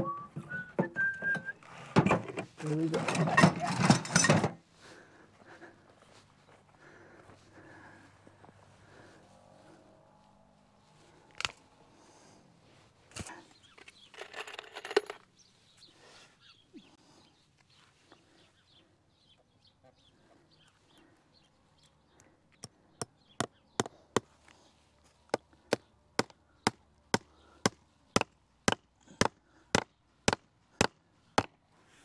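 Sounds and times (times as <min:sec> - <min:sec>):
hammer striking wooden post: 0:25.7 - 0:31.6.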